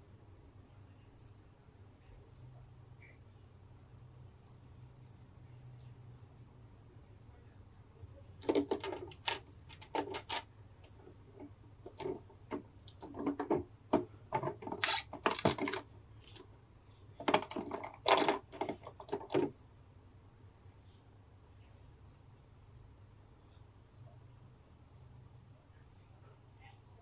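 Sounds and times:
plastic tray crinkling: 8.4s - 16.5s, 17.2s - 19.5s.

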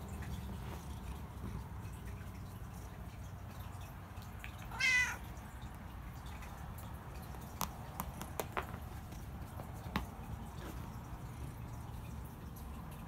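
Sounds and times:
cat meowing: 4.7s - 5.3s.

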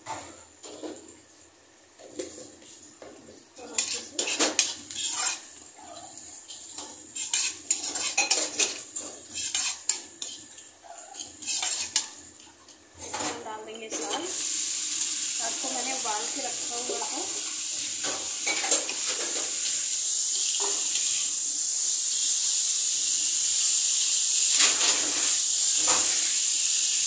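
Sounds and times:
onions frying: 0.0s - 27.0s
spatula scraping metal pan: 3.7s - 5.5s, 6.5s - 12.2s.

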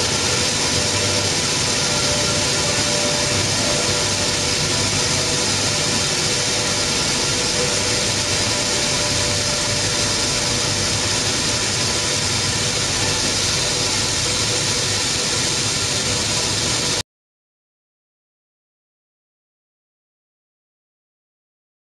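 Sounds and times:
faint steady hums: 0.0s - 15.4s
milling machinery roaring: 0.0s - 17.0s.

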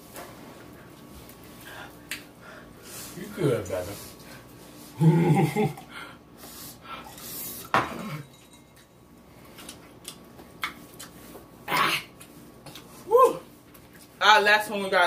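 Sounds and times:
glass and dishes clinking: 7.7s - 9.1s.

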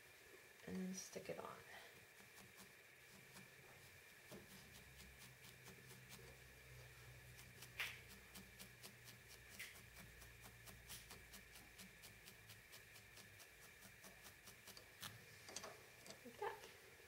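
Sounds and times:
felting needle stabbing wool: 2.2s - 15.2s.

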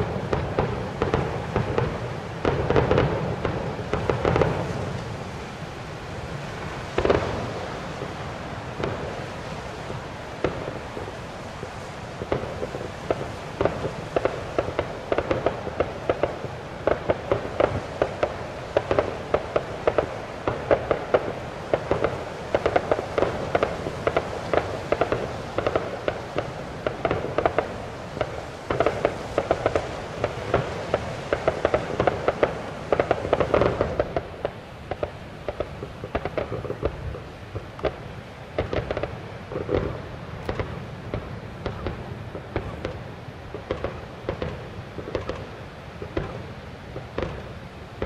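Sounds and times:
fireworks bangs and crackles: 0.0s - 48.0s.

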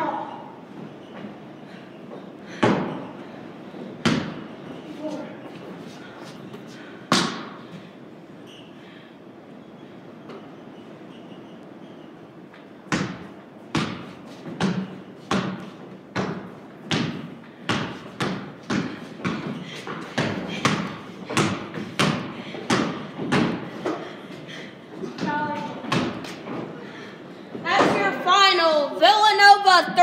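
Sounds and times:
basketball bouncing on wooden floor: 2.6s - 3.0s, 4.0s - 4.4s, 12.9s - 24.1s, 25.1s - 26.7s.

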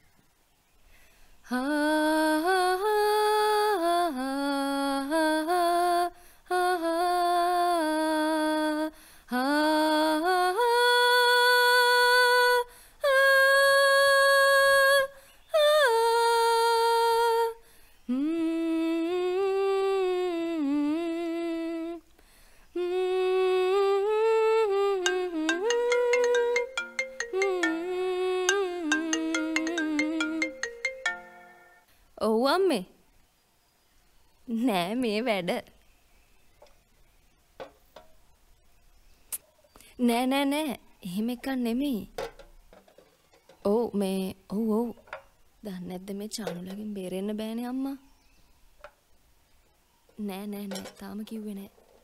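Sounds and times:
woman humming a gentle melody: 1.5s - 22.1s, 22.7s - 31.6s.

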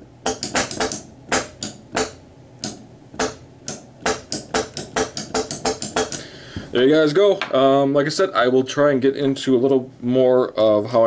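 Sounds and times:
pneumatic rifle firing air blasts: 0.3s - 2.2s.

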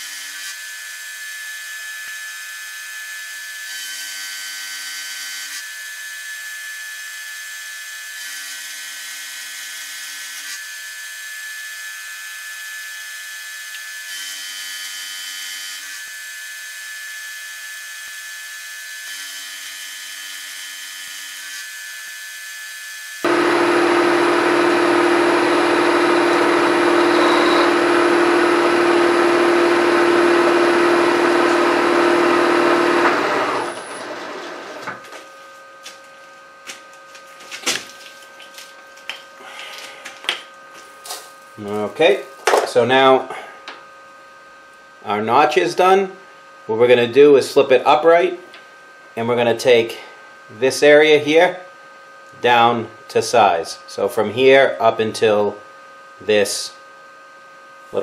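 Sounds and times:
milling machine whine: 23.0s - 35.3s.

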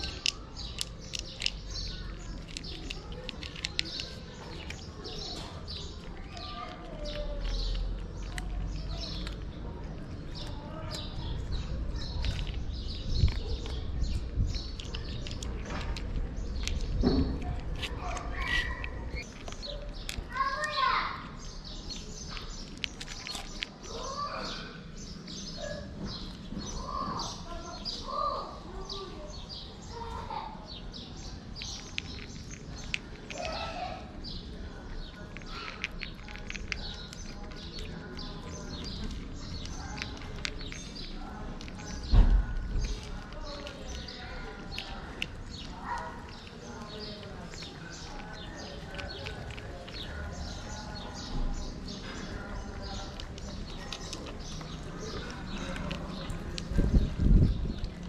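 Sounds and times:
small clicks: 0.0s - 20.8s
crunching of dry cat food: 0.0s - 58.0s
small birds chirping: 0.0s - 58.0s
kitten lapping water: 34.1s - 58.0s.

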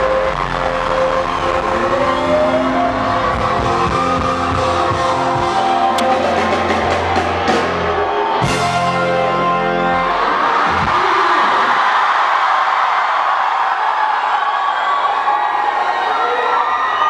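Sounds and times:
live rock band playing: 0.0s - 11.1s.

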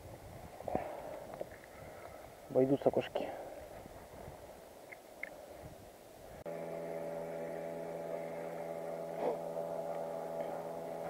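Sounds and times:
faint outdoor background: 0.0s - 11.0s
steady hum with overtones: 6.3s - 11.0s.

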